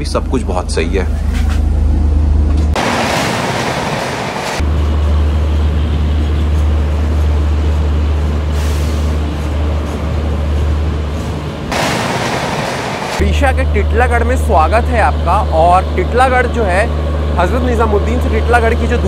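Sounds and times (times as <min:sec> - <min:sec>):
train rushing rumble: 0:00.0 - 0:19.0
steady deep hum: 0:13.2 - 0:19.0.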